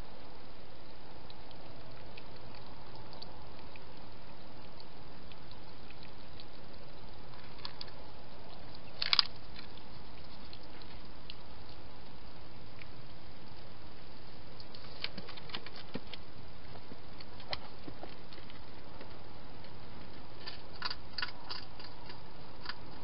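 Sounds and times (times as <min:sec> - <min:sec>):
steady hiss: 0:00.0 - 0:23.0
hedgehog wet clicking and smacking: 0:01.2 - 0:13.7.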